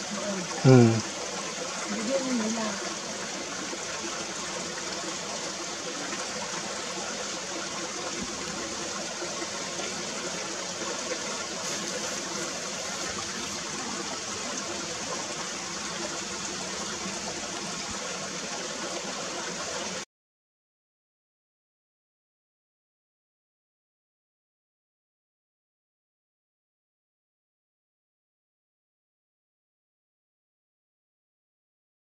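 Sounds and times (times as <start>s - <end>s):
stream running over stones: 0.0s - 20.1s.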